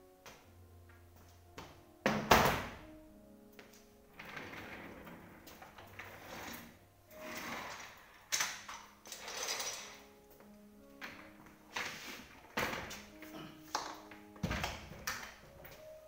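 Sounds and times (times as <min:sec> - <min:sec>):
office chair scraping and rattling: 0:04.1 - 0:10.1, 0:11.1 - 0:13.3.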